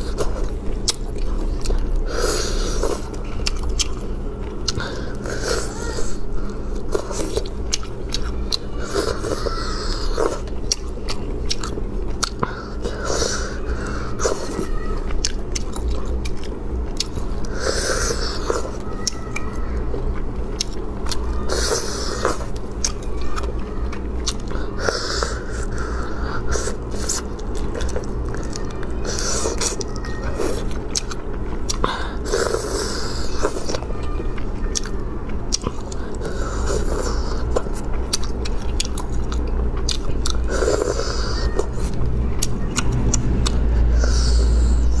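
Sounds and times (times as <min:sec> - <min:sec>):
chewing: 0:00.0 - 0:45.0
low hum: 0:29.8 - 0:45.0.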